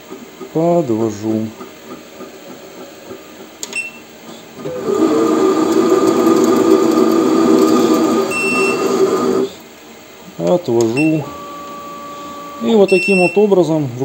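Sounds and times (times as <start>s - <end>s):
lathe motor whine and hum: 4.6s - 9.6s, 10.8s - 12.9s.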